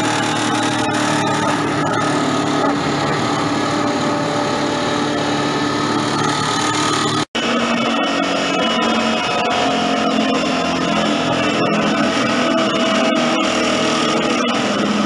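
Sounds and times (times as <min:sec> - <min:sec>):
sawdust machine cutting wood: 0:00.0 - 0:15.0.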